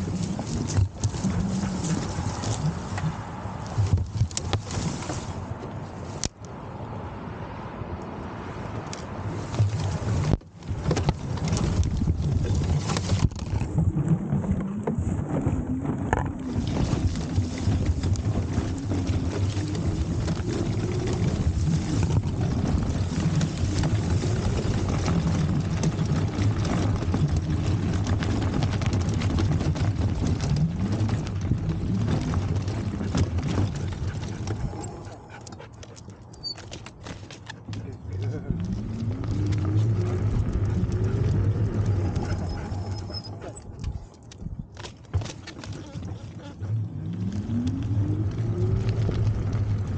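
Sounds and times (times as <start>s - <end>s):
e-bike rumbling over rough ground: 0.0s - 6.0s, 8.9s - 49.9s
wind on microphone: 9.2s - 35.7s.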